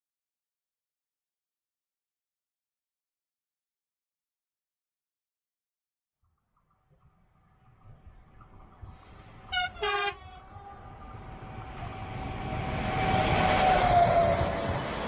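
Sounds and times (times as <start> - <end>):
train rumble: 6.9 - 15.0
locomotive whine: 7.0 - 15.0
train horn blasts: 9.5 - 11.1.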